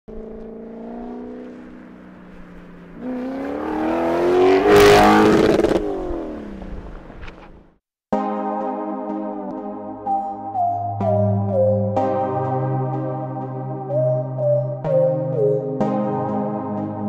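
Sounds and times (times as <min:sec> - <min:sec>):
car engine accelerating: 0:00.1 - 0:07.8.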